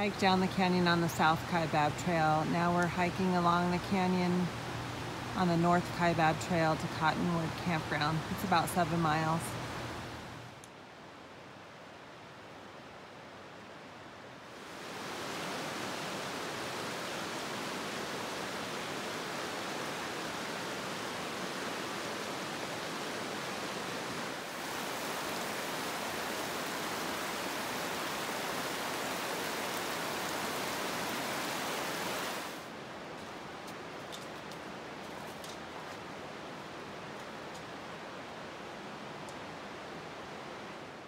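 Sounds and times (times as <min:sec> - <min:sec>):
creek flowing over rocks: 0:14.5 - 0:34.0.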